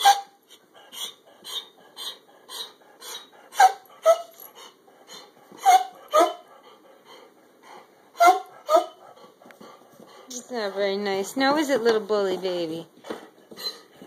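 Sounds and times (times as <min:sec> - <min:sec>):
dog yelping: 0:00.0 - 0:04.5, 0:05.1 - 0:06.4, 0:08.2 - 0:09.0, 0:13.5 - 0:13.9
dog huffing and whining: 0:00.0 - 0:11.0, 0:13.1 - 0:14.0.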